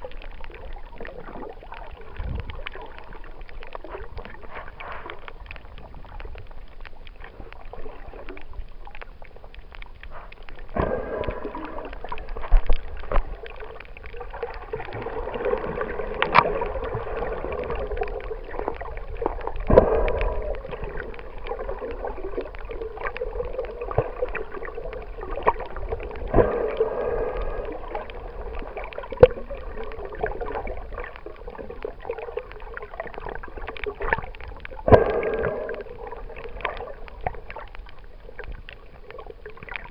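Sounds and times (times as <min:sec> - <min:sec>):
underwater water swishing: 0:00.0 - 0:39.9.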